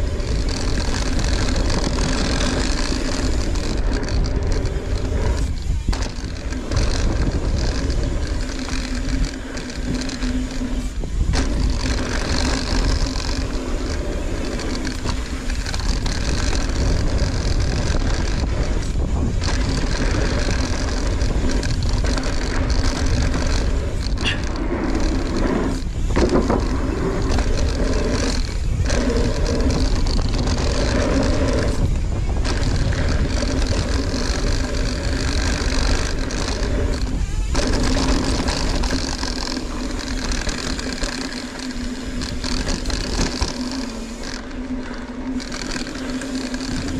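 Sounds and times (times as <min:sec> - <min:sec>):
bike rattling: 0:00.0 - 0:46.9
bike tyres rolling on dirt: 0:00.0 - 0:46.9
wind rushing over microphone: 0:00.0 - 0:46.9.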